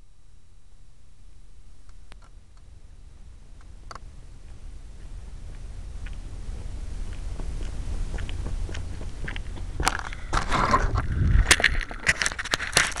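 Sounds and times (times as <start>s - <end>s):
steady low rumble: 0.0s - 13.0s
grass rustling against microphone: 3.3s - 13.0s.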